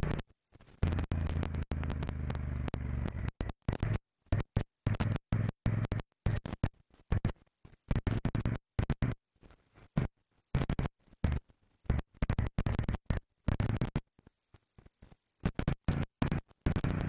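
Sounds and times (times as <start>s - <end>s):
motorcycle engine: 0.8s - 3.4s.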